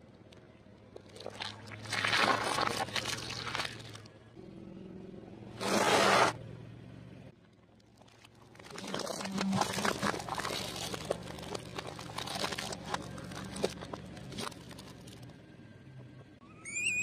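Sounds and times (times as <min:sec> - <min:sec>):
eggs crunching under car tyre: 0:00.8 - 0:04.2, 0:07.5 - 0:15.4.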